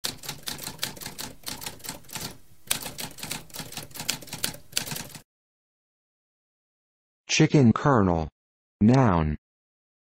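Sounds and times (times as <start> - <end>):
typewriter typing: 0.0 - 5.2.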